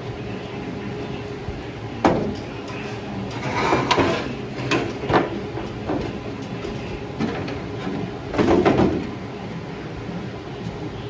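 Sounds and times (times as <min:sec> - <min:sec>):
metal fender scraping clatter: 0:02.7 - 0:05.0.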